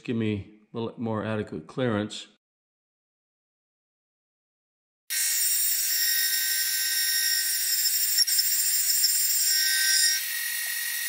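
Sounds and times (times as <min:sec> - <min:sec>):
milling machine whine: 0:06.0 - 0:11.0.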